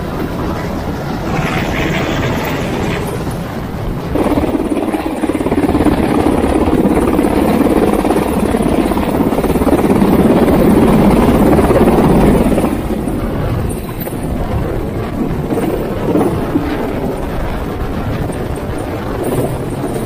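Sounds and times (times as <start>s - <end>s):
helicopter rotor beat and turbines: 0.0s - 20.0s.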